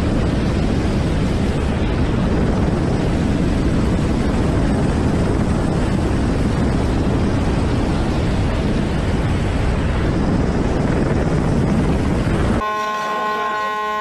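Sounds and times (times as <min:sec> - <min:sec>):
helicopter wind and rotor noise: 0:00.0 - 0:14.0
steady horn tones: 0:12.6 - 0:14.0.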